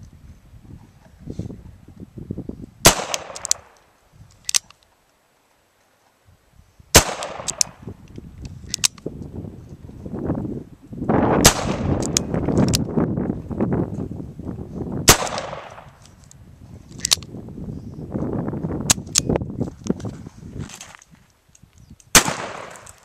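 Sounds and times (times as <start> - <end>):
revolver gunshots with echoes: 2.8 - 3.7, 6.9 - 7.7, 11.4 - 11.9, 15.1 - 15.9, 22.1 - 22.9.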